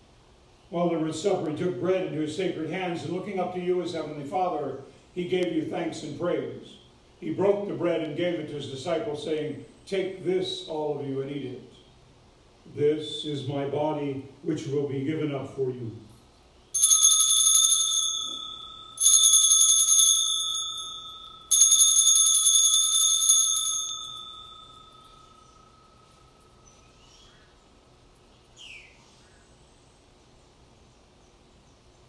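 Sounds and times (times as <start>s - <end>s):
altar bells ringing: 16.8s - 27.0s.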